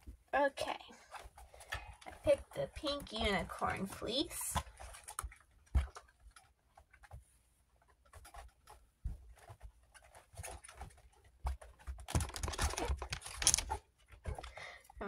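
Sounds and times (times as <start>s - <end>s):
fleece liner rustling: 4.6s - 14.6s.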